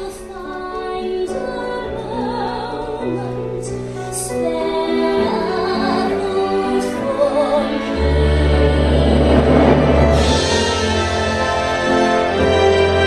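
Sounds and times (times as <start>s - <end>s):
woman singing operatic ballad: 0.0s - 9.2s
orchestral accompaniment: 7.3s - 13.0s
deep bass swell: 8.0s - 11.3s.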